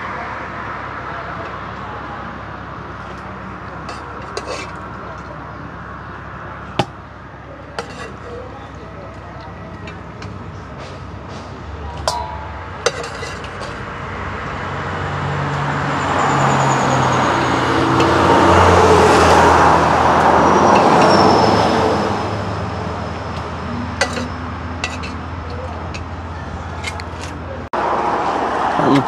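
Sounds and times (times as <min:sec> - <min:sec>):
vehicle driving past: 0:13.5 - 0:25.1.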